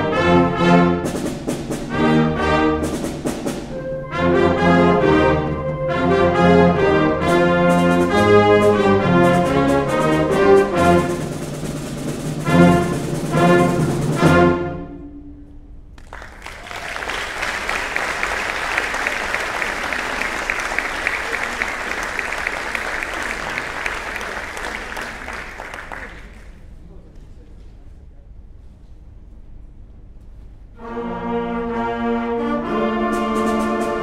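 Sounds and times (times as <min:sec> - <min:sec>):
concert band playing: 0:00.0 - 0:15.1, 0:17.0 - 0:26.1, 0:32.4 - 0:34.0
audience applauding: 0:16.0 - 0:26.7.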